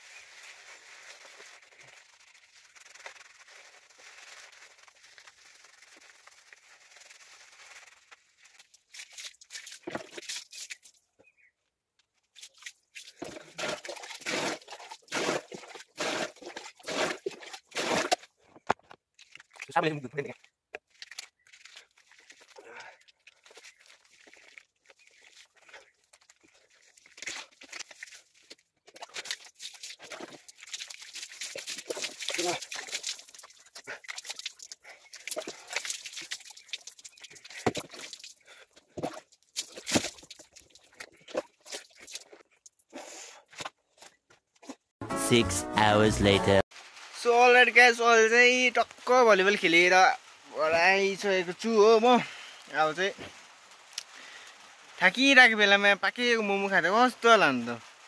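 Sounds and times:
hands scrubbing lathered hair: 0:00.1 - 0:10.9, 0:21.0 - 0:38.4.

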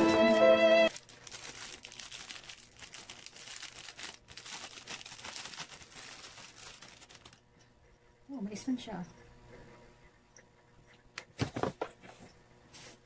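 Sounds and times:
plastic bag crinkling: 0:00.9 - 0:07.5.

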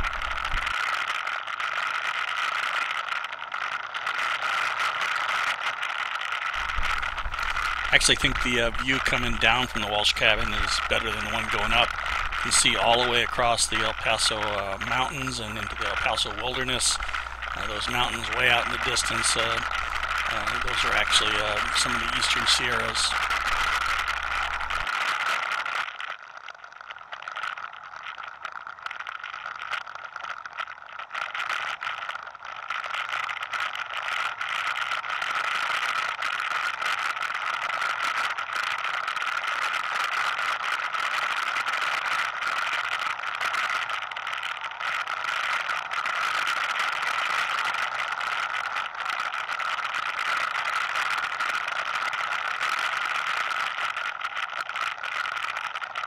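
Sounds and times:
atv engine running: 0:00.0 - 0:00.7, 0:06.6 - 0:24.9.

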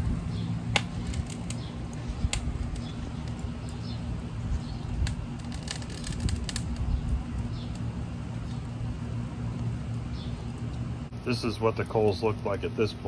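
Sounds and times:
wind buffeting microphone: 0:00.0 - 0:01.3, 0:04.4 - 0:07.7.

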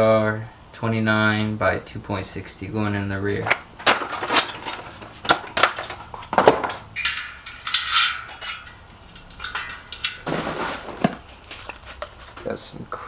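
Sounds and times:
tire clattering onto wheel rim: 0:03.5 - 0:12.4.

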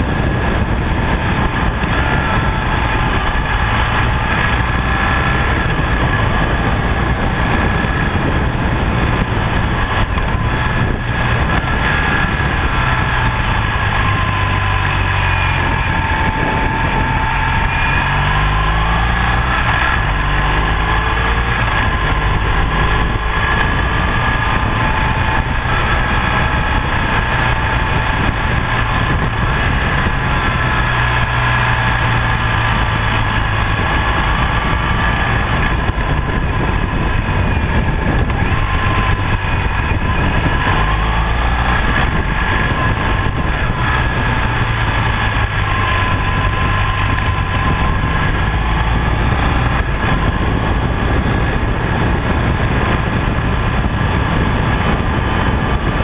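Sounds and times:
motorcycle engine droning: 0:00.0 - 0:56.0
wind and road noise: 0:00.0 - 0:56.0.

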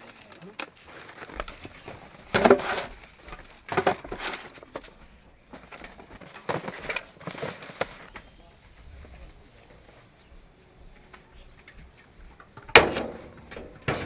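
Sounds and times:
cardboard boxes scuffing and knocking: 0:00.9 - 0:08.4.

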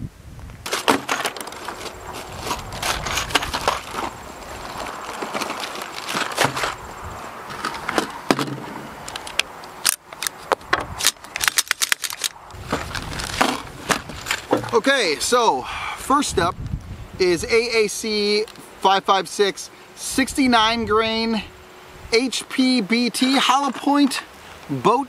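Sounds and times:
plastic crinkling: 0:00.7 - 0:06.9, 0:10.0 - 0:14.6.

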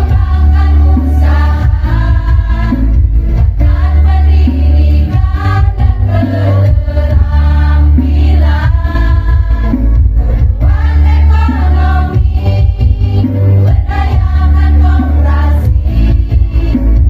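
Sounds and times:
choir singing: 0:00.0 - 0:03.0, 0:03.6 - 0:16.8.

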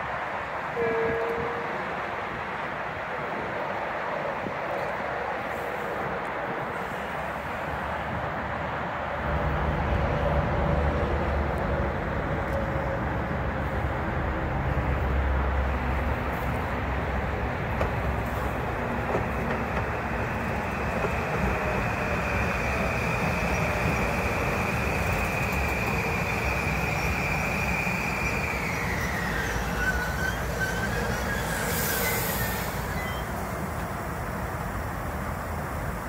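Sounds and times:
high train whine: 0:00.0 - 0:36.0
train wheels rumbling on rail: 0:00.0 - 0:36.0
brief hiss: 0:31.4 - 0:34.0.

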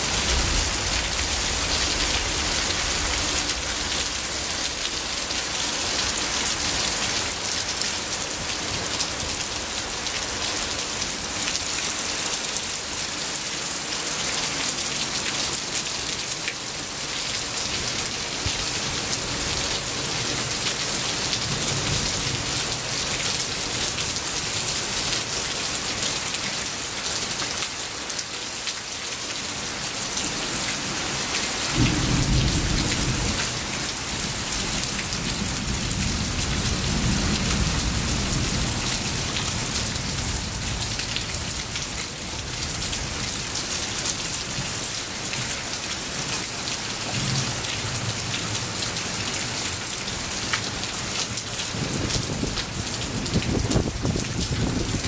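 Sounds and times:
rain falling: 0:00.0 - 0:55.0.

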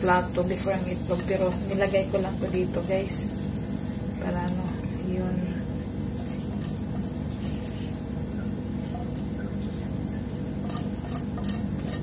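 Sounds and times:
steady low hum: 0:00.0 - 0:12.0
spatula scraping frying pan: 0:10.2 - 0:12.0.

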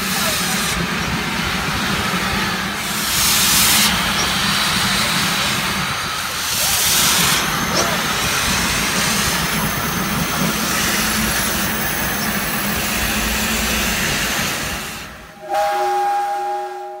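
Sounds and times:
steam locomotive hissing: 0:00.0 - 0:16.9
steam whistle chord: 0:15.4 - 0:17.0.

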